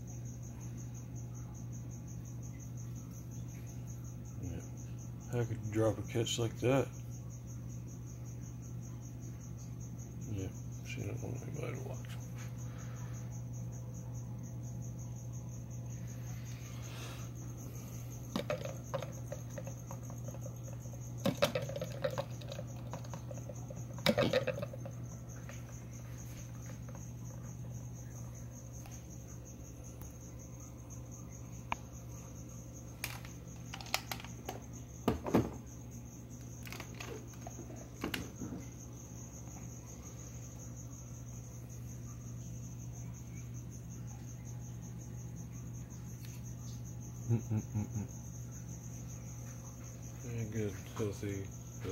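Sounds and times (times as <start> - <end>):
crickets chirping: 0.0 - 51.9
plastic enclosures clicking and knocking: 18.2 - 27.5, 33.0 - 35.7, 36.4 - 38.8.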